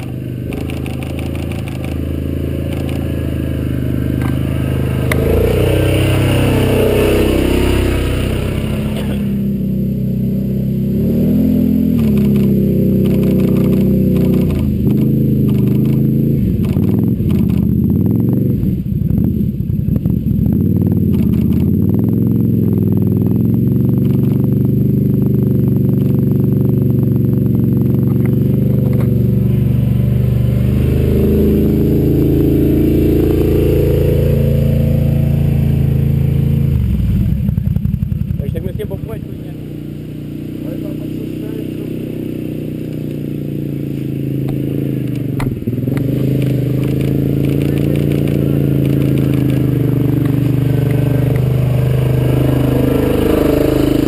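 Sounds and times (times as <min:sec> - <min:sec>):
quad bike engine revving: 0:00.0 - 0:54.0.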